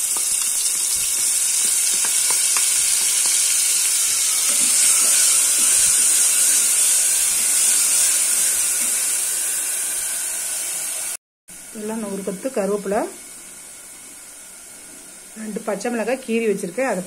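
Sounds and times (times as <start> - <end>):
paste sizzling in hot oil: 0.0 - 11.2.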